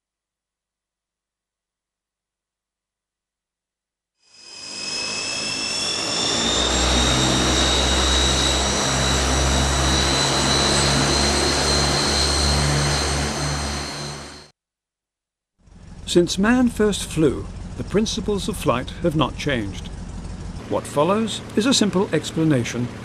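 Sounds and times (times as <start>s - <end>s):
jet turbine engines whining: 4.4s - 14.5s, 15.7s - 23.0s.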